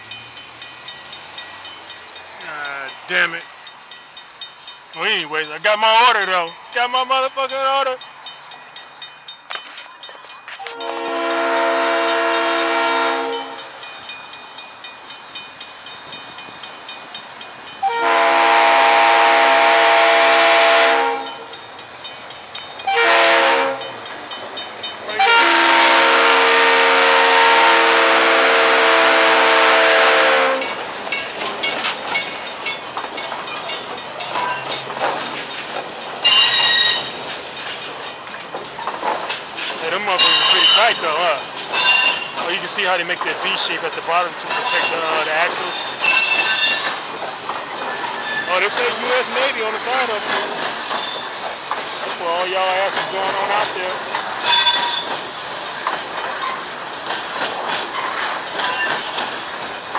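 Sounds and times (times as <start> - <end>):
crossing bell ringing: 0.0 - 55.5, 58.0 - 59.8
train wheels clacking over rail joints: 0.0 - 59.9
locomotive air horn blasts: 10.6 - 13.7, 17.8 - 21.5, 22.9 - 23.9, 25.2 - 30.7.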